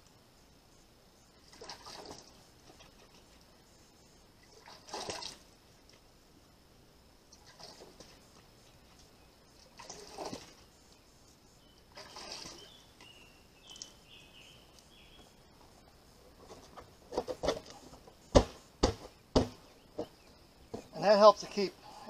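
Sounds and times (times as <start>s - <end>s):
rustling: 7.3s - 21.0s
faint bird chirps: 10.6s - 16.0s.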